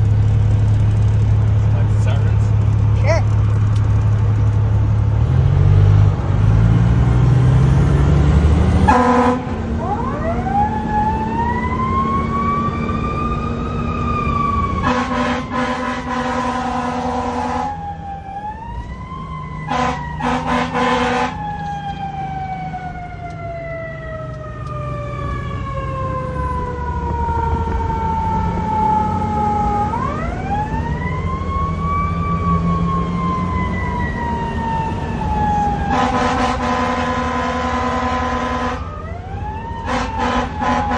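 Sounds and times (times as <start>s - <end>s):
truck engine and road noise: 0.0s - 40.9s
fire engine siren: 6.3s - 40.9s
air horn blasts: 8.9s - 9.6s, 14.8s - 17.7s, 19.7s - 21.4s, 35.9s - 38.8s, 39.8s - 40.9s.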